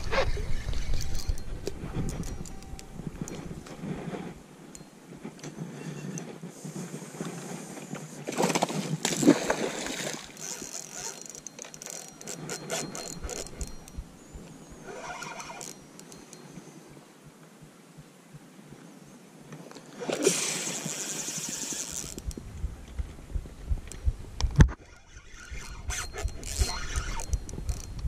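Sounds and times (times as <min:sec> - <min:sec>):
fishing reel clicks and knocks: 0:10.3 - 0:14.0, 0:20.7 - 0:22.4, 0:23.9 - 0:28.0.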